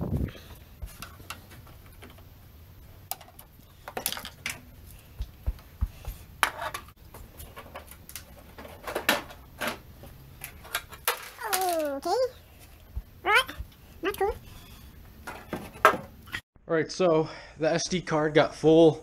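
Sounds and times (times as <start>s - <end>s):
hand tools and metal parts clinking: 3.0s - 16.4s.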